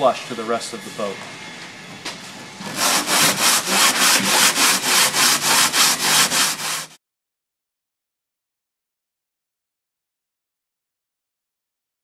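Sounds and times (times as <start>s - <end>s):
sandpaper rubbing back and forth: 2.7s - 7.0s.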